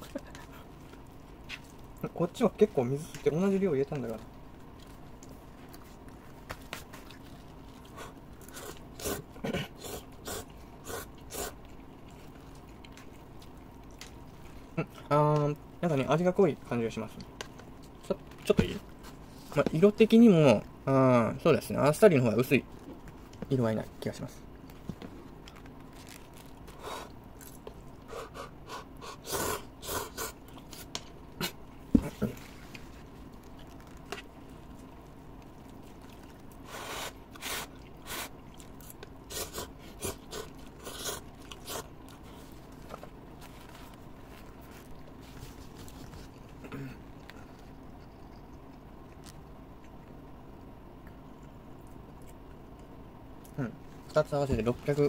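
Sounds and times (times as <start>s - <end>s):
chewing noises: 3.0s - 15.7s, 24.3s - 54.1s
person slurping noodles: 8.4s - 11.6s, 28.2s - 31.6s, 39.3s - 41.9s.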